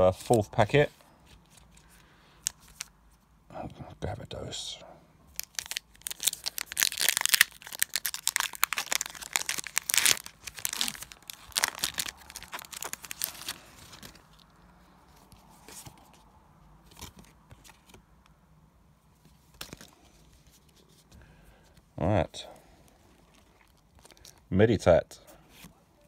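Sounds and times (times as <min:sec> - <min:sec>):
foil wrapper crinkling: 0:05.3 - 0:14.5.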